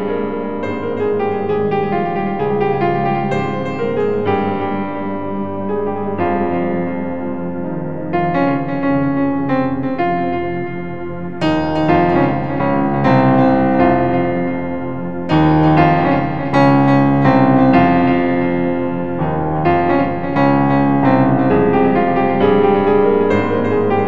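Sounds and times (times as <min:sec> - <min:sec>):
slow piano-like keyboard chords: 0:00.0 - 0:24.0.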